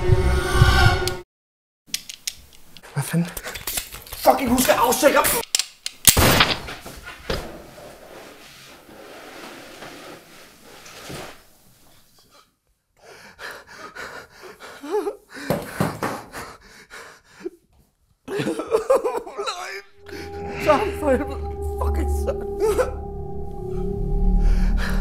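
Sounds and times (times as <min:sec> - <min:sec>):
man panting and whimpering: 0:13.0 - 0:17.7.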